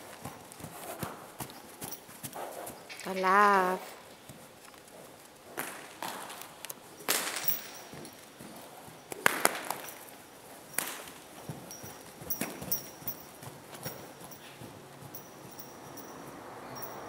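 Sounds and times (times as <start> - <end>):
hooves on sand: 0.0 - 17.0
sharp cracks: 5.5 - 7.8, 9.1 - 10.0.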